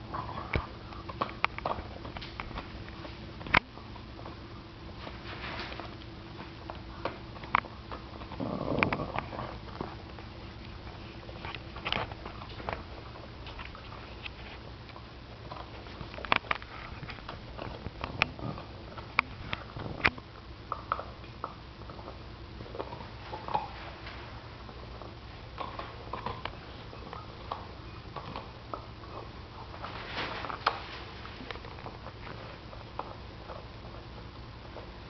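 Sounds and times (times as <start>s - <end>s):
dog teeth cracking on bone: 0.5s - 3.6s, 6.0s - 10.0s, 10.6s - 23.8s.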